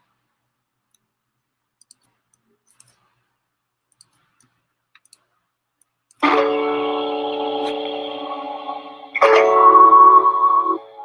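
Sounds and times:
faint computer mouse clicks: 1.8s - 3.1s, 3.9s - 6.2s.

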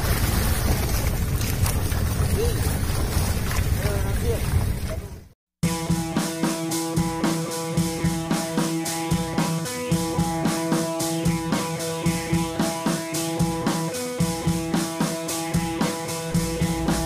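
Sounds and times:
background music with steady beat: 5.6s - 17.0s.

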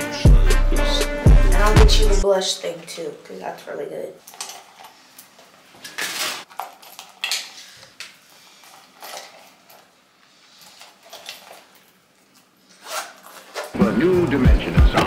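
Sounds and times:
canvas purse rustling: 5.9s - 13.8s.

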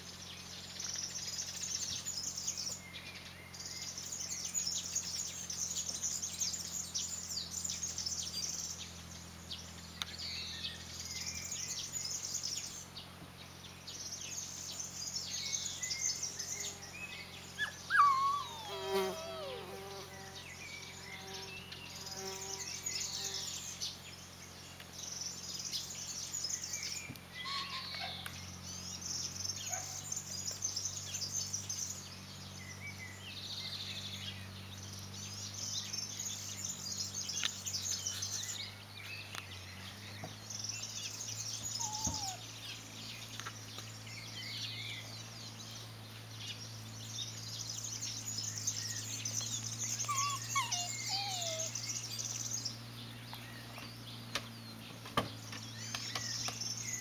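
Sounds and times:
birds chirping and singing: 0.0s - 57.0s
short squeaky bird calls: 17.6s - 20.0s, 27.4s - 28.2s, 41.7s - 42.5s, 49.9s - 52.0s.

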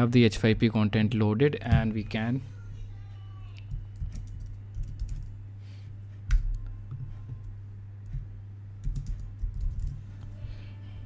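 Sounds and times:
steady low hum: 0.0s - 11.0s
computer keyboard typing: 3.9s - 5.3s, 8.8s - 10.0s.

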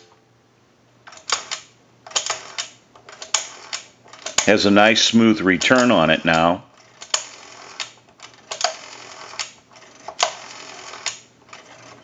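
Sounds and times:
rotary telephone dial clicking: 1.1s - 4.5s, 6.8s - 12.0s.

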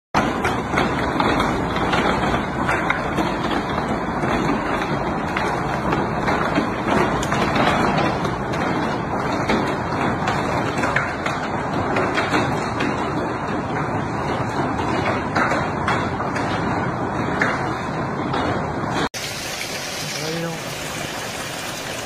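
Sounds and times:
heavy hail pelting down: 19.2s - 22.0s.

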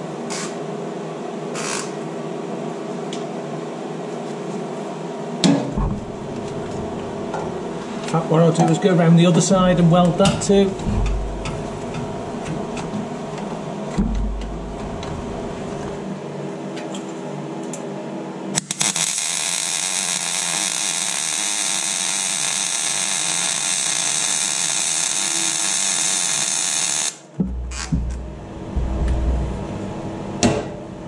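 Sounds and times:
welder crackling hiss: 18.6s - 27.2s
welding arc strike: 18.6s - 29.7s.

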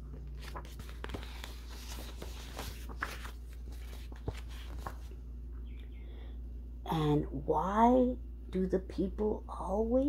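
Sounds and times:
paper page rustling: 0.0s - 5.2s
steady low hum: 0.0s - 10.0s.

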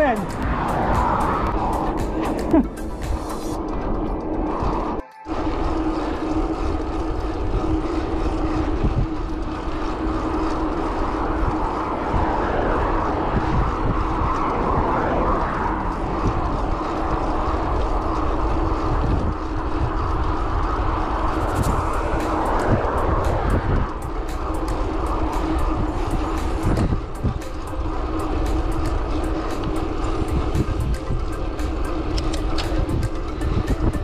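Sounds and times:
wind rush on microphone: 0.0s - 34.0s.

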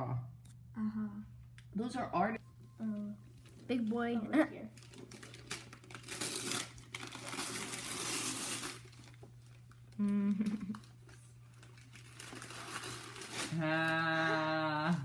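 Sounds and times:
person humming: 0.8s - 1.3s, 10.0s - 10.8s, 13.5s - 15.0s
wrapping paper tearing and crumpling: 4.7s - 15.0s.

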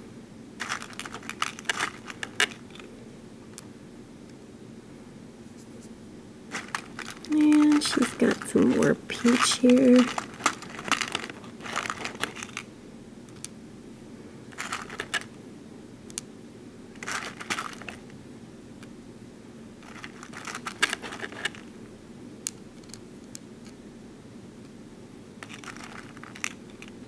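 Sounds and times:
low steady hum: 0.0s - 27.0s
plastic beads clicking on tray: 6.6s - 8.5s.

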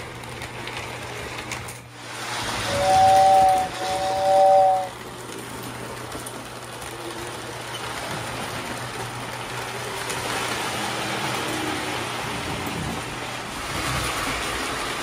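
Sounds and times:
model train wheels clattering: 0.0s - 15.0s
train whistle: 2.5s - 4.9s.

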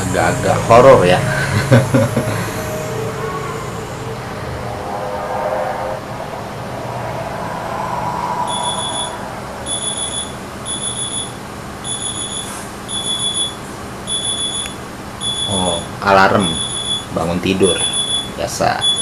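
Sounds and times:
low steady drone: 0.0s - 13.4s
phone alarm beeping: 8.5s - 19.0s.

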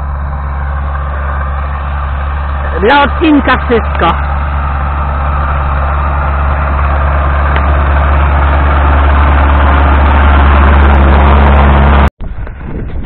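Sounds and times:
tractor diesel engine running: 0.0s - 13.0s.

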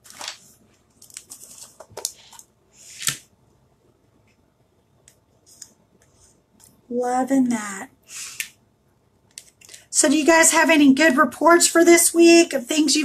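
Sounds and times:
hands rustling craft supplies: 0.0s - 3.2s.

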